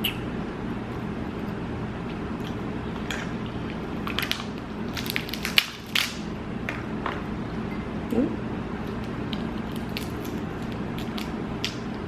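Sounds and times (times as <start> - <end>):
steady low hum: 0.0 - 12.0
crab shells cracking: 4.0 - 6.2, 8.9 - 11.9.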